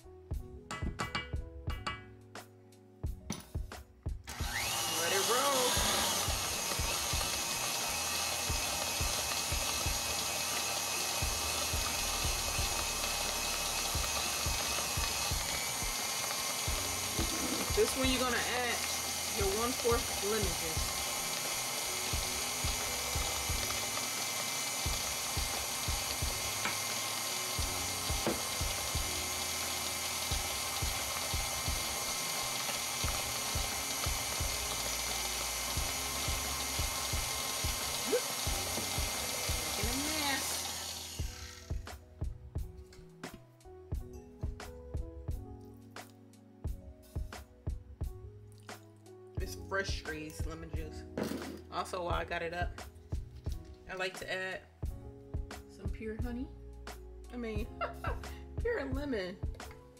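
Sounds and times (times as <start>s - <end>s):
stand mixer running: 4.3s - 41.9s
beater turning through batter: 4.3s - 42.0s.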